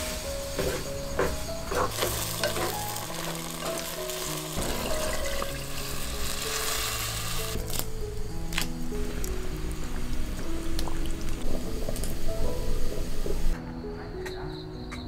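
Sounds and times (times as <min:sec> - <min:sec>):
meat sizzling in pot: 0:00.0 - 0:13.5
soft background music: 0:00.0 - 0:15.0.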